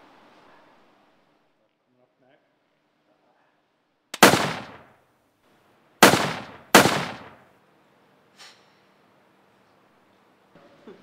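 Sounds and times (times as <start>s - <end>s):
pistol gunshots echoing: 4.2s - 4.9s, 6.0s - 7.4s.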